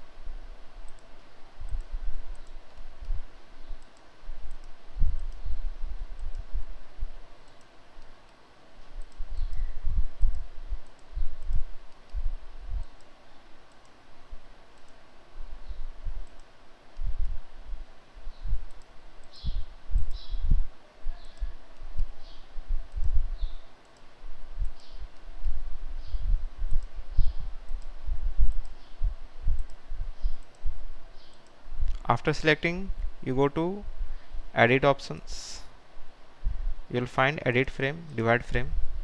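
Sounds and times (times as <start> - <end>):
computer mouse clicking: 0.8 - 5.5, 6.2 - 6.5, 7.4 - 12.2, 12.8 - 14.0, 14.8 - 15.0, 15.6 - 17.4, 18.3 - 20.4, 21.2 - 32.1.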